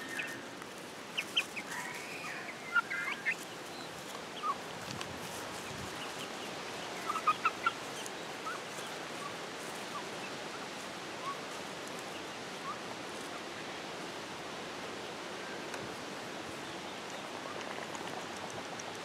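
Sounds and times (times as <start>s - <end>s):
ducks chirping: 0.0s - 0.5s, 1.1s - 4.7s, 5.6s - 13.4s
chickens clucking: 0.0s - 13.7s
steady background hiss: 0.0s - 19.0s.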